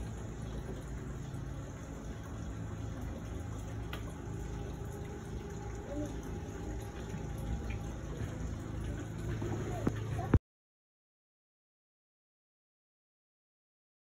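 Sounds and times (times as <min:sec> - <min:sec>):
gurgling pond water: 0:00.0 - 0:10.4.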